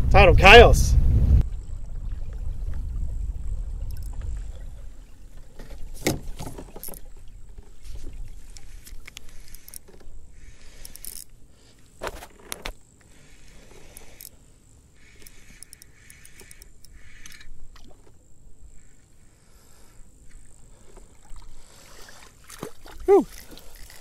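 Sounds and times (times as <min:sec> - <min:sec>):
kayak moving through water: 0:01.4 - 0:24.0
fishing reel clicks and rattles: 0:03.9 - 0:04.2, 0:08.5 - 0:11.4, 0:13.2 - 0:14.4, 0:15.0 - 0:17.6.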